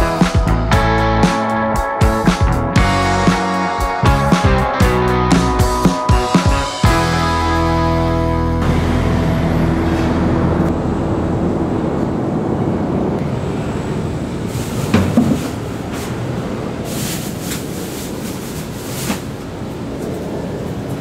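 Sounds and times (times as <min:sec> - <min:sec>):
music: 0:00.0 - 0:12.0
street rumble and hiss: 0:00.0 - 0:21.0.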